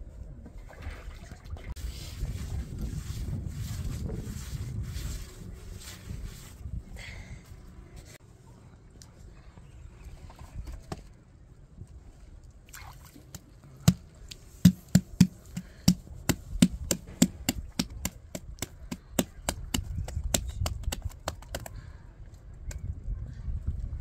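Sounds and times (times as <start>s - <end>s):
low background rumble: 13.5s - 24.0s.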